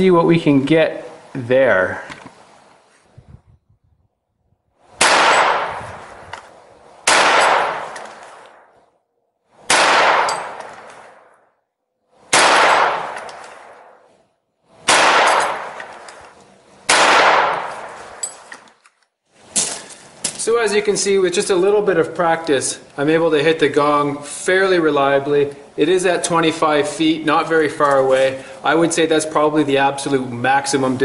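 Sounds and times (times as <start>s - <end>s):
gunshot cracks: 5.0s - 6.0s, 7.0s - 8.7s, 9.7s - 11.3s, 12.3s - 14.0s, 14.9s - 16.1s, 16.9s - 18.2s
steel target plates clanging: 17.9s - 18.8s.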